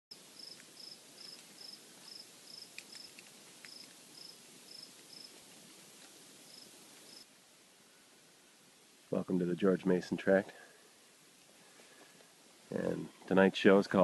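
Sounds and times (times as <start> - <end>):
cricket chirping: 0.1 - 5.4, 6.4 - 7.3
faint hiss: 0.1 - 14.0
faint clicks: 0.5 - 4.0.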